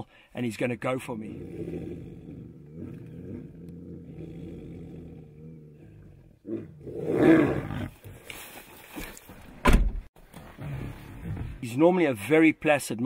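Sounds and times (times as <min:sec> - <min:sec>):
tigers snarling and roaring: 0:01.2 - 0:08.2.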